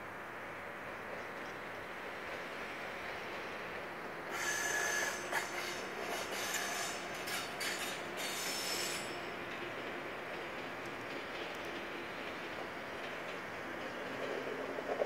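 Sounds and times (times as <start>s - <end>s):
train rolling rumble: 0.0s - 15.0s
train wheels squealing: 2.5s - 9.8s.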